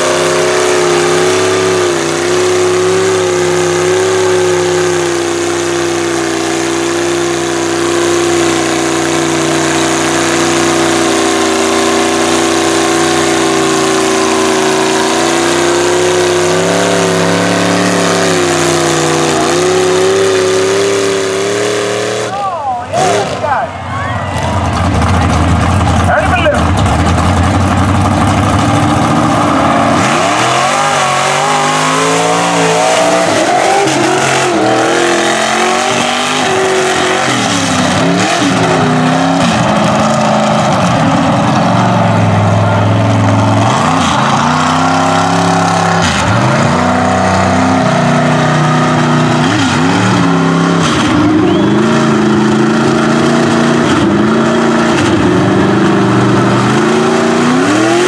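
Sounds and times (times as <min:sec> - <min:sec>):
truck engine revving: 0:00.0 - 0:58.0.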